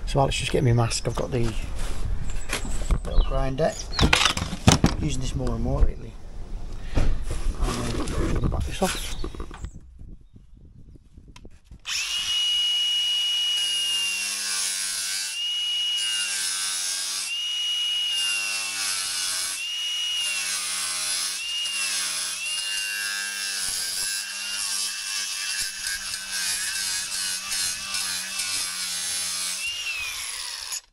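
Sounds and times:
angle grinder cutting plastic: 0:11.9 - 0:30.9.

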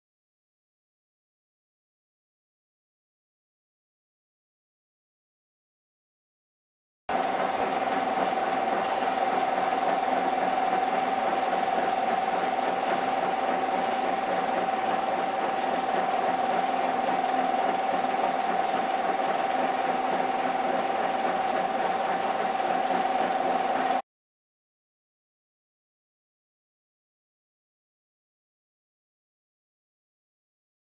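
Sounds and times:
lathe running with whine: 0:07.1 - 0:24.0.

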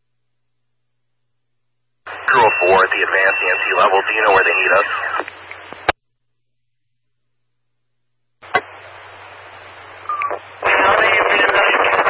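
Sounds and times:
short radio tone: 0:02.1 - 0:05.3, 0:10.0 - 0:12.0
radio speech: 0:02.1 - 0:06.0, 0:08.4 - 0:12.0
radio static: 0:02.1 - 0:06.0, 0:08.4 - 0:12.0.

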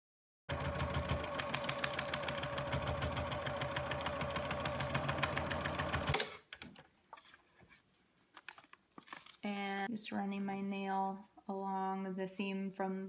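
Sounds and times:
sewing machine stitching: 0:00.5 - 0:06.4.

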